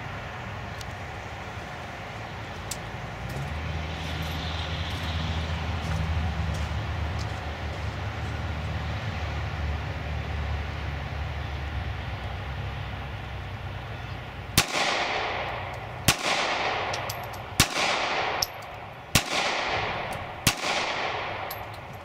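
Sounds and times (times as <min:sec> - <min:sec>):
pistol shots with echo: 0:14.6 - 0:22.0.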